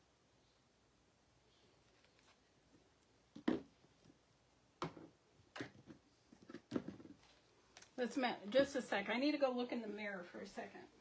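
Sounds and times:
plastic bottles knocking and clattering: 3.3s - 3.8s, 4.8s - 7.2s.

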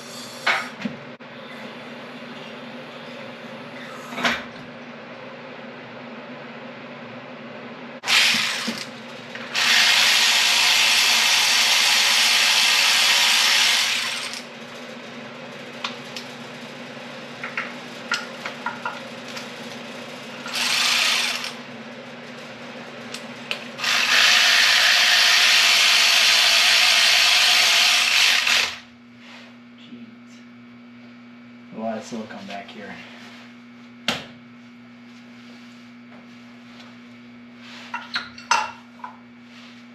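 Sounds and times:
handheld power tool running: 8.0s - 14.5s, 20.4s - 21.6s, 23.8s - 28.9s.

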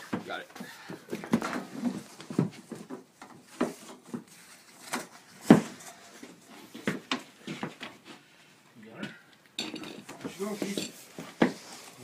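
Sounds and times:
wooden knocks and clunks: 0.0s - 4.3s, 5.0s - 8.0s.

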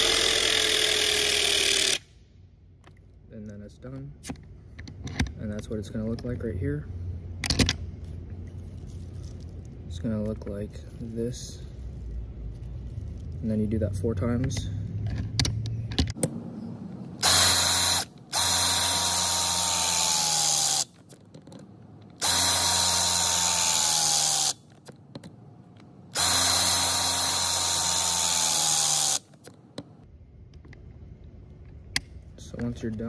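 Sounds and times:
hydraulic crimper motor whine: 17.2s - 20.9s, 22.2s - 24.6s, 26.1s - 29.3s.

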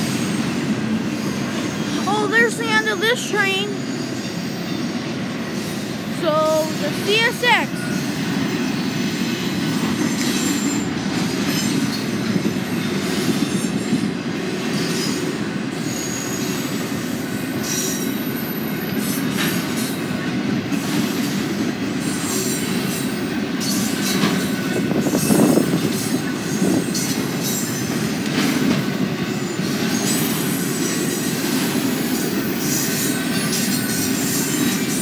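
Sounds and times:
freight train wheels rumbling: 0.0s - 35.0s
high-pitched wheel squeals: 3.7s - 5.0s, 15.8s - 19.2s.

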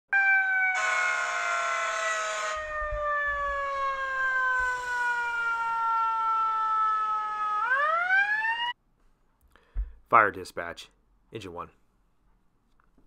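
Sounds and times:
fire engine siren wailing: 0.1s - 8.8s.

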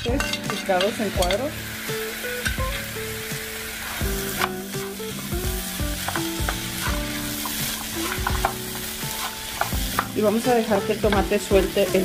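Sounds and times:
food sizzling in a pan: 0.0s - 12.0s
wooden spatula scraping a pan: 6.0s - 12.0s.

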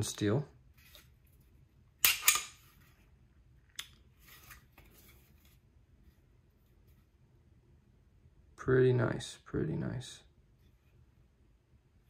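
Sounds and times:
pistol click: 2.0s - 2.6s
pistol slide scraping: 2.0s - 2.7s.

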